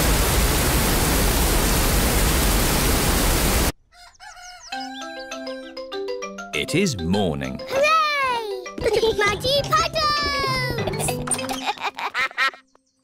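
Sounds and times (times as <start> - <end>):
heavy rain hissing: 0.0 - 3.7.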